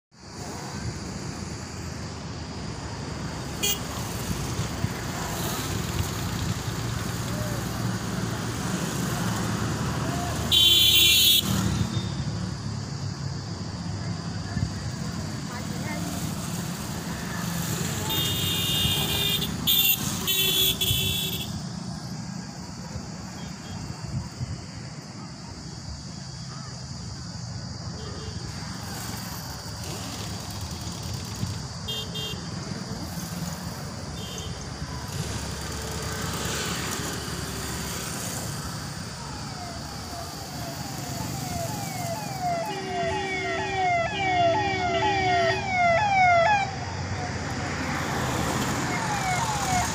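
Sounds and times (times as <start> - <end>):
road traffic: 0.1 - 49.9
vehicle engines running: 2.6 - 10.5, 28.4 - 49.9
vehicle horn honk: 10.5 - 12.1, 18.1 - 21.6, 31.9 - 32.4
high horn beeps: 42.4 - 46.1.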